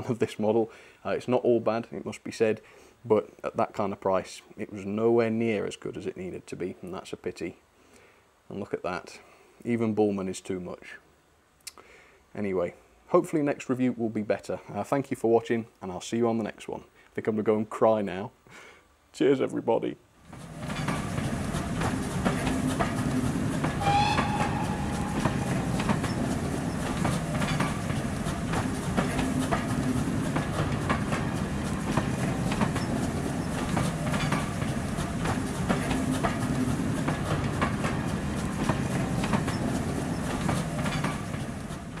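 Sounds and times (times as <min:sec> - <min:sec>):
train wheels clicking over rail joints: 0:20.2 - 0:42.0
brief high-pitched tone: 0:23.8 - 0:26.3.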